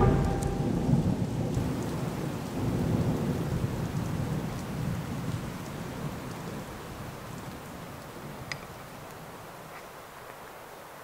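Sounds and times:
thunder rumbling: 0.0 - 6.7.

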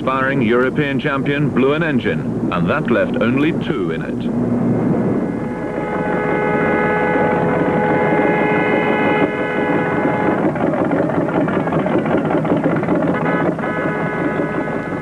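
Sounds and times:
dense noisy background: 0.0 - 15.0
horns blasting: 5.0 - 15.0.

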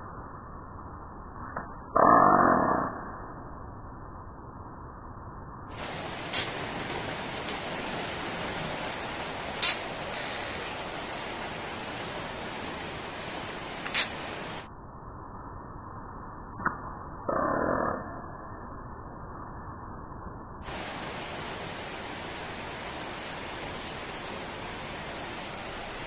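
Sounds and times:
static hiss: 5.7 - 14.7, 20.6 - 26.0
faint dull hiss: 5.8 - 14.6
sharp clicks: 9.6 - 10.6, 13.8 - 14.2.

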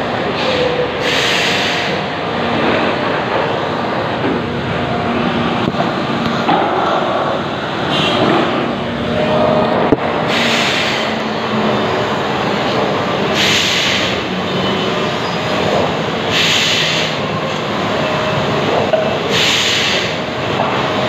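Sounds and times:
factory machinery running: 0.0 - 21.0
hiss bursts: 0.4 - 2.0, 10.3 - 11.2, 13.3 - 14.2, 16.3 - 17.2, 19.3 - 20.2.

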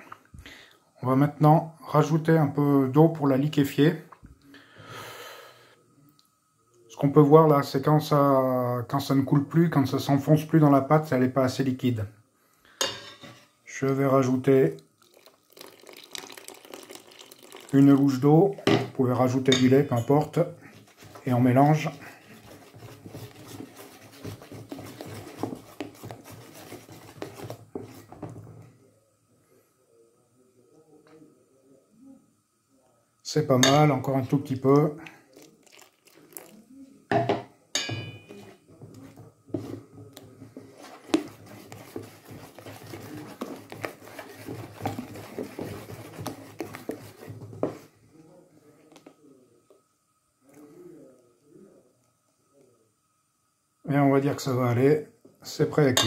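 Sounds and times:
batter being stirred: 12.8 - 28.7, 33.3 - 37.0, 37.8 - 49.8, 55.5 - 56.0
metal scraping against bowl: 16.7 - 28.3, 37.8 - 39.9, 40.6 - 47.8.

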